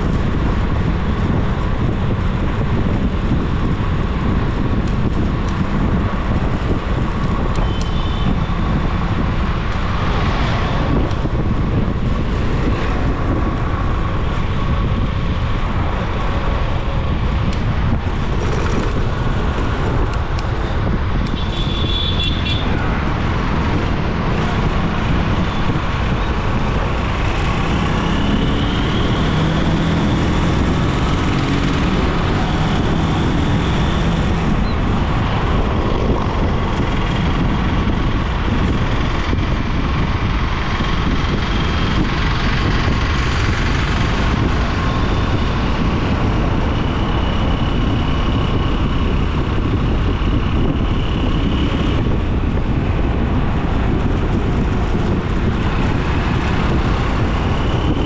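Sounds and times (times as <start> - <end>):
engine drone: 0.0 - 58.0
road noise: 0.0 - 58.0
wind noise: 0.0 - 58.0.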